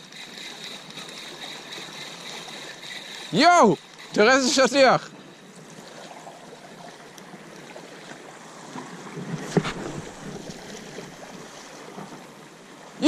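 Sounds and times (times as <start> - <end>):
waves lapping against rocks: 0.0 - 13.0.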